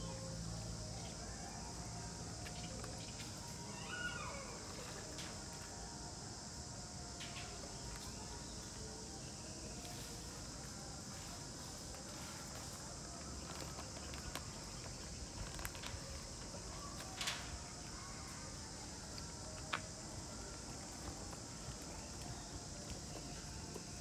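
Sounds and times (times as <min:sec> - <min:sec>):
high-pitched insect drone: 0:00.0 - 0:24.0.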